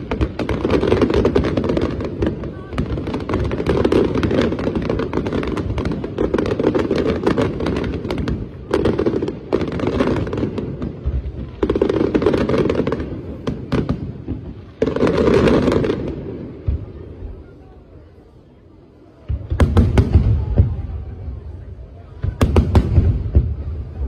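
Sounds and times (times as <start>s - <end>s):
fireworks bangs and crackling: 0.0s - 24.0s.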